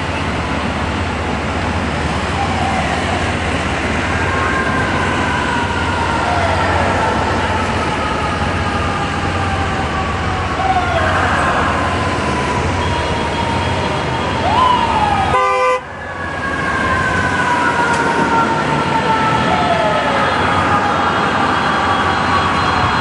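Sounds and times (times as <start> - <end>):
city traffic: 0.0 - 23.0
sirens wailing: 0.0 - 23.0
vehicle horn blast: 15.3 - 15.9.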